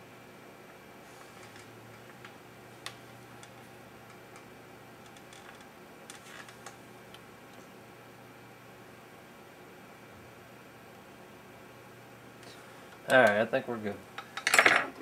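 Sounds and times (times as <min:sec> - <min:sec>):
faint hum and hiss: 0:00.0 - 0:15.0.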